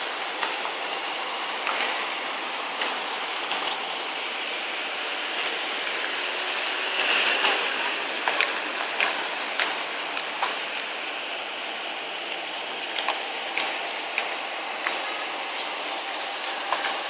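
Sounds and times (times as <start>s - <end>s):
street traffic hiss: 0.0s - 17.0s
sharp irregular clicks and taps: 8.2s - 10.6s, 12.3s - 15.1s.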